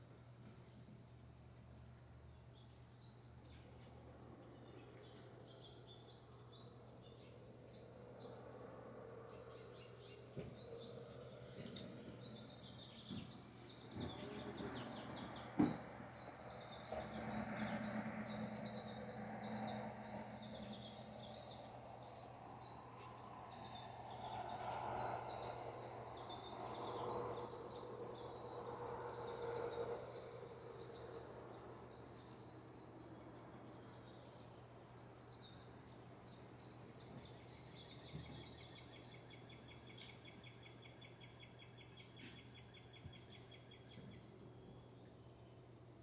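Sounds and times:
faint background noise: 0.0 - 46.0
small birds chirping: 0.0 - 46.0.

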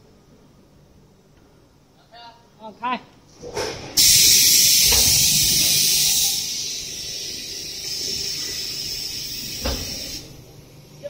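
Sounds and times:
pressurised jet hissing: 4.0 - 10.4.

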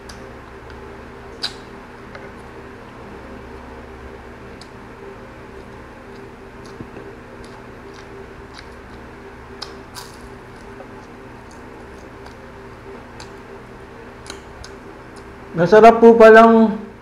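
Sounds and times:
wet chewing: 0.0 - 2.6, 4.4 - 15.4
low hum: 0.0 - 17.0
crunchy bite: 6.2 - 12.4.

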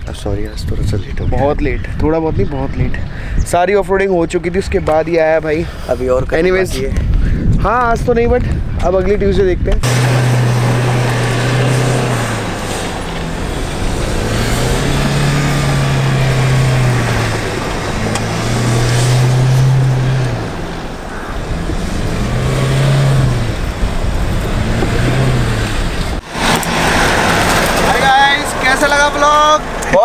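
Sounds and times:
engine revving hard: 9.8 - 29.2
tyres and dirt spraying: 9.8 - 29.9.

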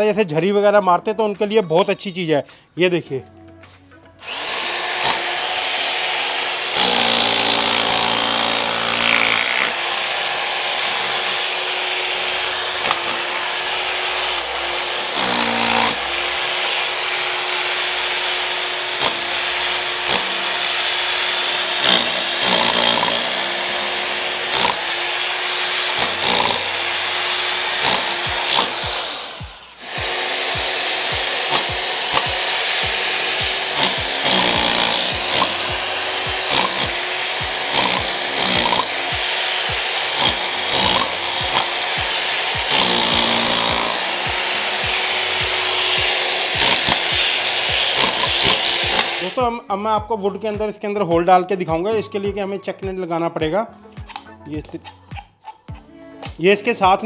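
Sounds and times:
rotary hammer chiselling brick wall: 4.3 - 29.2, 29.8 - 49.4.

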